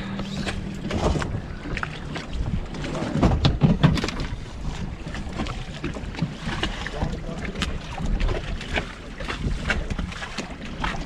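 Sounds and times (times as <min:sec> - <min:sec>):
water slapping boat hulls: 0:00.0 - 0:11.0
wind buffeting microphone: 0:00.0 - 0:11.0.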